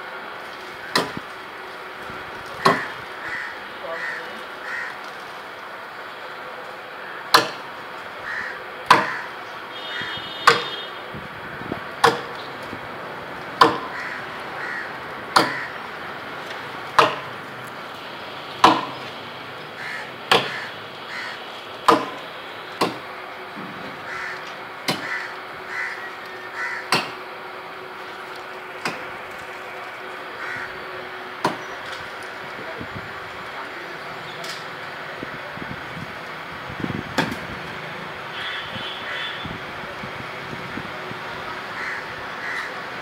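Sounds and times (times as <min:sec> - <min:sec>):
blade chopping into palm trunk: 0:07.3 - 0:07.6, 0:12.0 - 0:12.3, 0:13.6 - 0:13.9, 0:18.6 - 0:19.0, 0:20.3 - 0:20.6, 0:21.9 - 0:22.2, 0:22.8 - 0:23.0.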